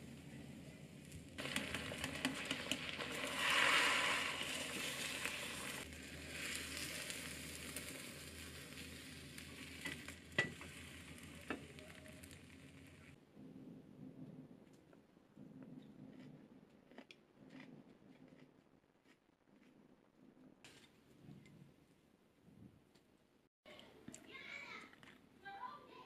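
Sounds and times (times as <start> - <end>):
egg sizzling in a pan: 0.0 - 13.2.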